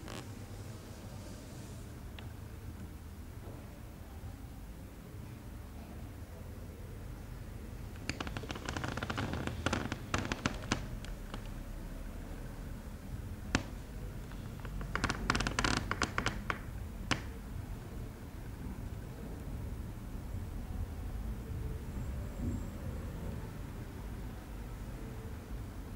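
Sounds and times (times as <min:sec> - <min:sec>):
fingertips tapping on floor: 0:13.5 - 0:17.3.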